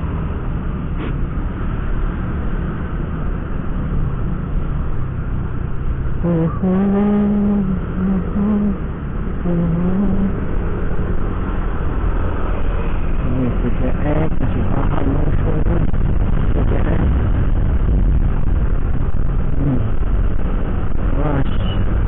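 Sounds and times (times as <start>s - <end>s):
scooter road rumble: 0.0s - 22.0s
held pitched tone: 6.2s - 10.4s
wind on microphone: 10.0s - 22.0s.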